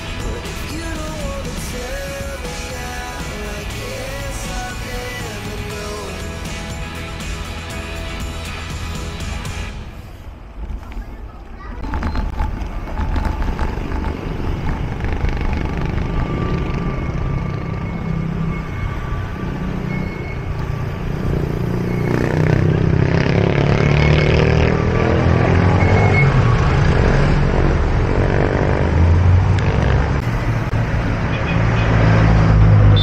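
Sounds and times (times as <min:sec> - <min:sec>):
road noise: 0:00.0 - 0:33.0
wind rumble: 0:09.8 - 0:21.6
motorcycle engine: 0:11.8 - 0:33.0.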